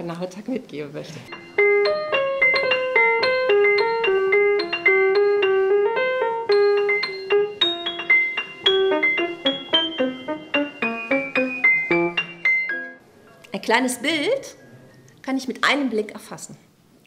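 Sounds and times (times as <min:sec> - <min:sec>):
ringing keyboard melody: 0:01.3 - 0:13.0.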